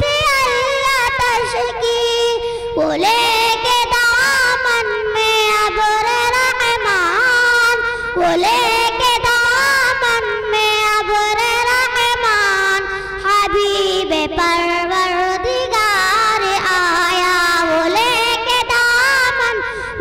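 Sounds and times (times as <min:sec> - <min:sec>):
girl singing into a microphone: 0:00.0 - 0:20.0
breaths between phrases: 0:02.4 - 0:02.8, 0:07.8 - 0:08.2.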